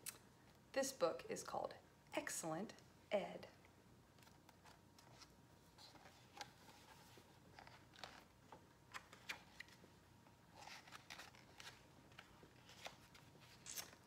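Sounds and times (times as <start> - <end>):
pages turning: 4.2 - 9.9, 10.5 - 14.0.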